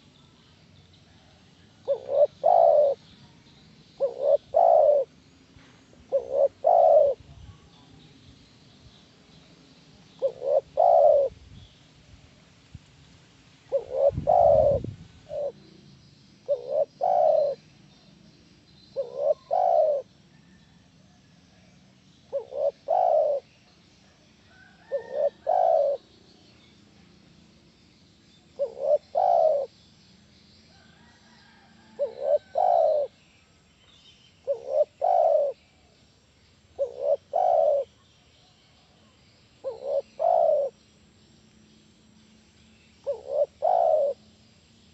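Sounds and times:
dove cooing: 0:01.6 - 0:03.1, 0:04.0 - 0:05.2, 0:06.0 - 0:07.3, 0:10.1 - 0:11.4, 0:13.6 - 0:15.7, 0:16.4 - 0:17.7, 0:19.0 - 0:20.6, 0:22.3 - 0:23.6, 0:24.5 - 0:26.2, 0:28.6 - 0:29.7, 0:31.0 - 0:33.2, 0:34.4 - 0:35.7, 0:36.8 - 0:38.0, 0:39.6 - 0:40.8, 0:43.0 - 0:44.3.

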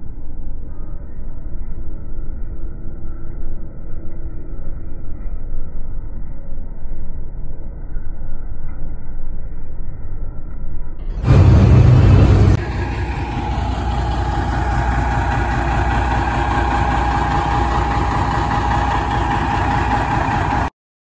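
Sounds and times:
truck diesel engine rumbling: 0:11.2 - 0:20.7.

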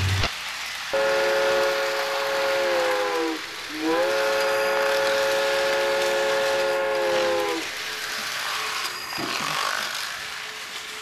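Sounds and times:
train horn chord: 0:00.9 - 0:07.8.

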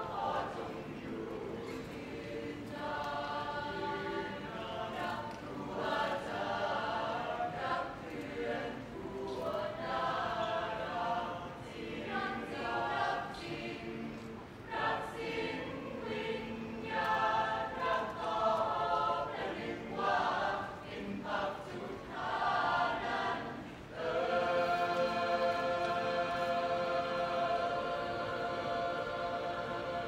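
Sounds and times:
choir singing: 0:00.0 - 0:30.0.

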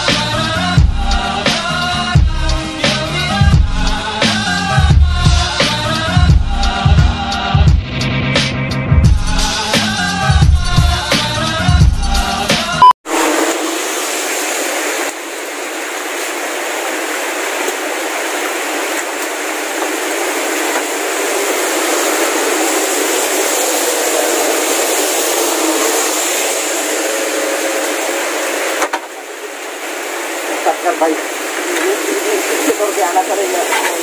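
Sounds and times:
steady rain falling: 0:13.5 - 0:34.0.

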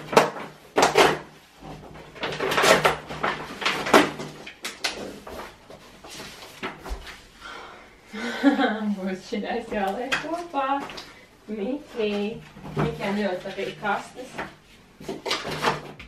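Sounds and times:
cardboard scraping and rustling: 0:00.0 - 0:07.3, 0:11.9 - 0:16.0.

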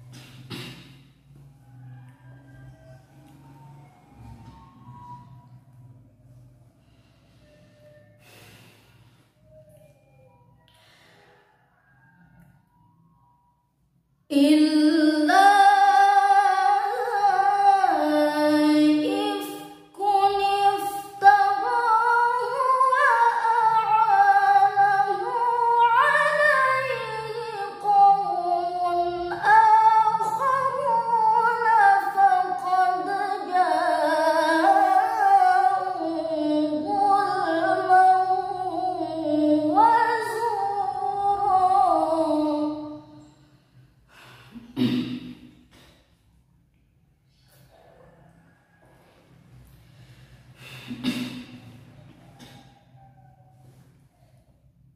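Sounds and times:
woman chanting melodically: 0:14.3 - 0:43.3.

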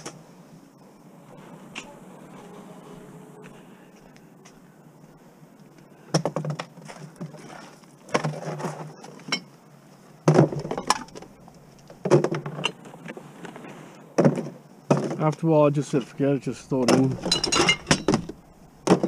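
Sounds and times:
bottles and containers clattering: 0:06.2 - 0:09.5, 0:10.2 - 0:12.9, 0:14.2 - 0:15.3, 0:16.0 - 0:19.0.

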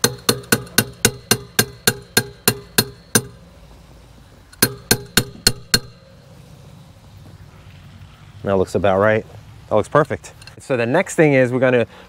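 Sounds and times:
tool tapping on metal crank: 0:00.0 - 0:03.4, 0:04.5 - 0:06.1.

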